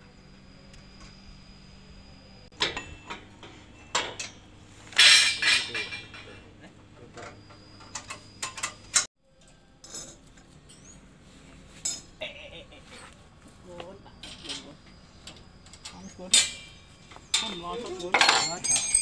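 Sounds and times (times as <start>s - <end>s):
metal parts knocking and clinking: 2.6s - 6.4s, 15.3s - 19.0s.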